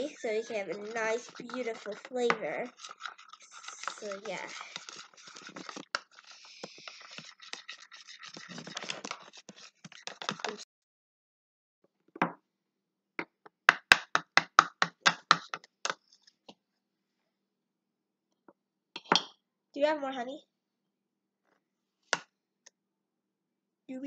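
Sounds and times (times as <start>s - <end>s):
utensil scraping a bowl: 0.0s - 10.6s.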